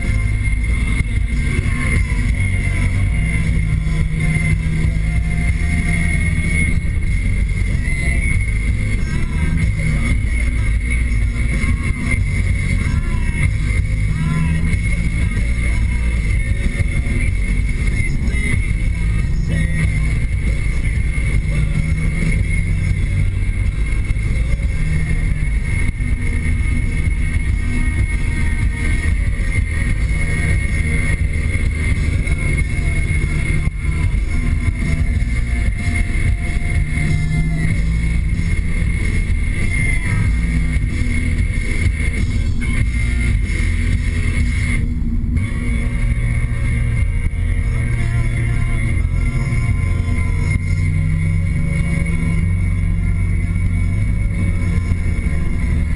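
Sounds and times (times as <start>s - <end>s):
car engine and road rumble: 0.0s - 55.9s
high engine whine: 0.0s - 55.9s
music playing: 0.0s - 55.9s.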